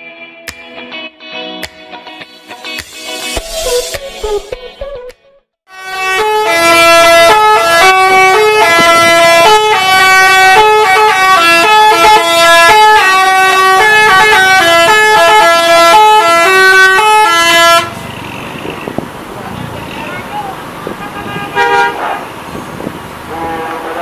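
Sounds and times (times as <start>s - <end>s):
multi-tone bus horn melody: 5.7s - 18.0s, 20.9s - 22.4s, 23.2s - 24.0s.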